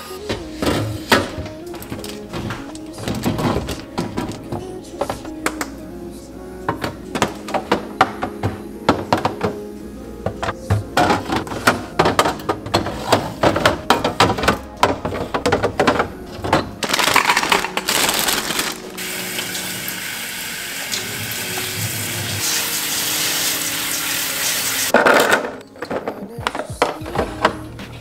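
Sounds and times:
plastic bins clicking and knocking: 0.1 - 5.8, 6.7 - 19.0, 24.9 - 28.0
faucet water running: 18.0 - 24.9.

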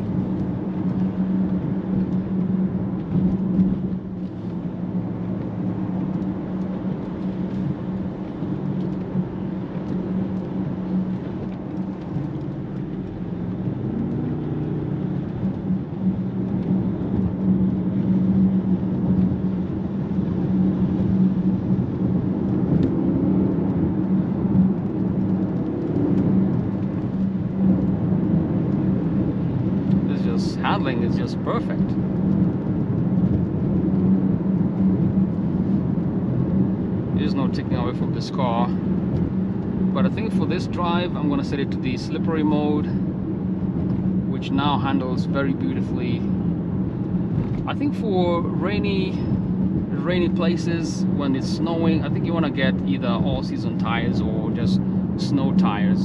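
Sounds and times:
car engine humming: 0.0 - 56.0.

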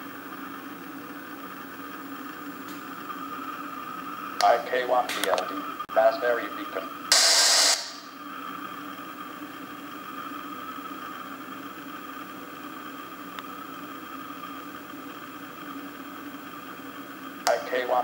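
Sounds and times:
loudspeaker hum and hiss: 4.3 - 8.2, 17.4 - 18.0.

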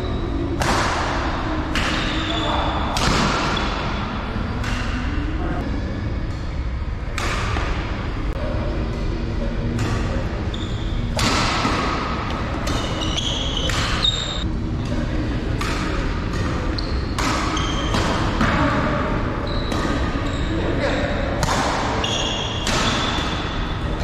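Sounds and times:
racket striking shuttlecock: 7.2 - 7.9, 11.1 - 14.1, 15.6 - 18.6, 21.4 - 23.5
shoes squeaking on court floor: 12.7 - 14.4, 19.4 - 20.6.

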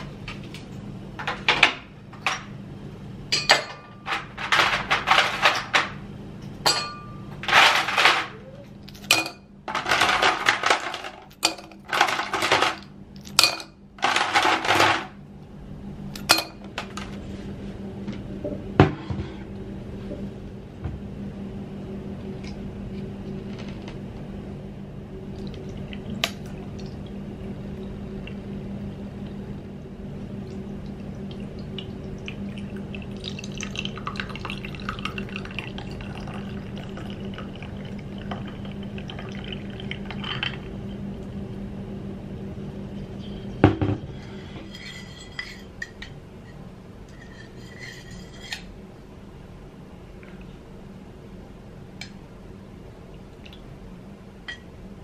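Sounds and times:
steady low hum: 0.0 - 55.0
liquid pouring over ice: 31.4 - 40.8.

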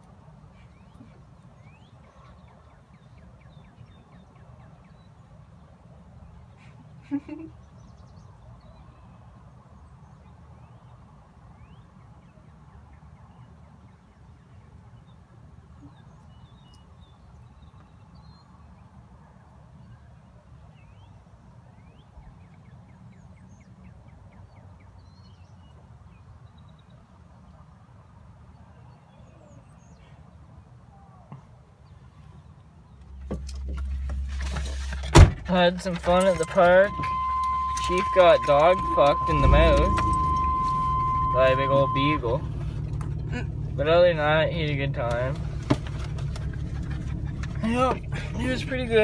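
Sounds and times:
low rumble: 33.0 - 49.0.

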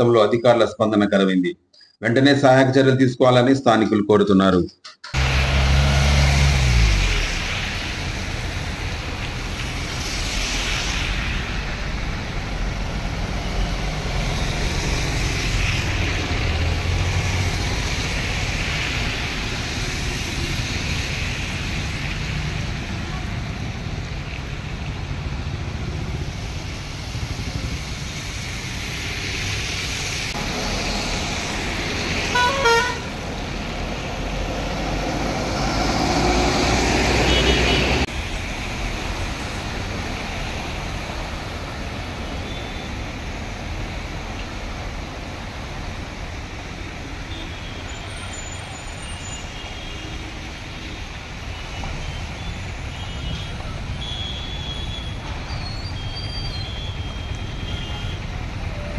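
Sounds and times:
engines rumbling: 5.0 - 58.9
tyres swishing through water: 5.2 - 58.9
vehicle horn beeps: 32.4 - 33.1, 37.2 - 38.0, 56.8 - 58.2.

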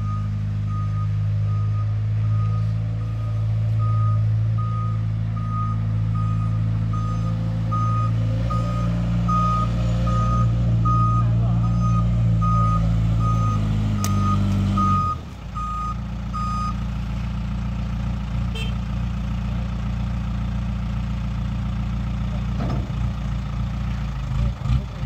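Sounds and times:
reversing alarm beeping: 0.0 - 16.8
diesel engine running: 0.0 - 25.0.

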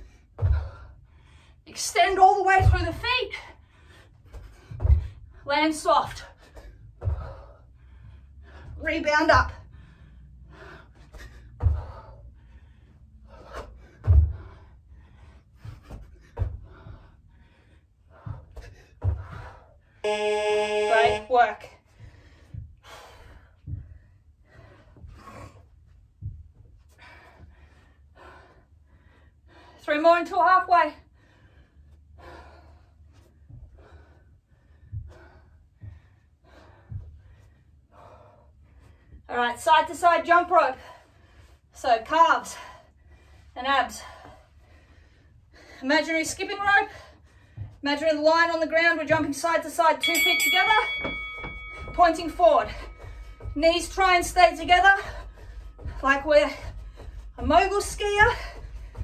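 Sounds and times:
soft low thumps: 0.0 - 27.7, 33.3 - 40.6, 45.9 - 59.0
person breathing hard: 6.4 - 8.8, 9.6 - 20.0, 42.5 - 45.8
feet thudding on floor: 6.5 - 7.6, 13.9 - 14.7, 50.5 - 59.0.

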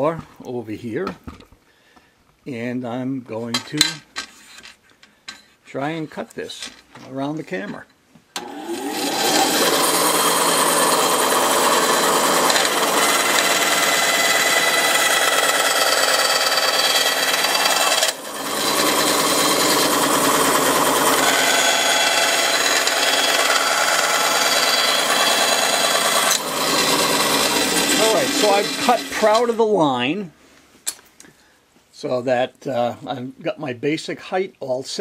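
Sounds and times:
bandsaw cutting wood: 8.4 - 29.6.

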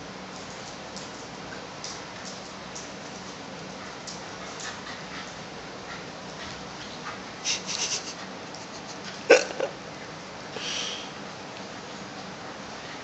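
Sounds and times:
dogs scratching while playing: 0.3 - 9.3.

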